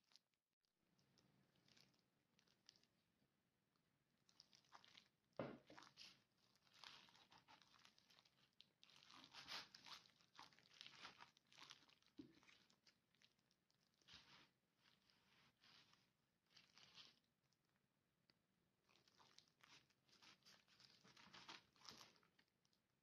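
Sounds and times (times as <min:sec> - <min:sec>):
plastic glove crinkling: 0:04.3 - 0:17.7, 0:18.8 - 0:22.8.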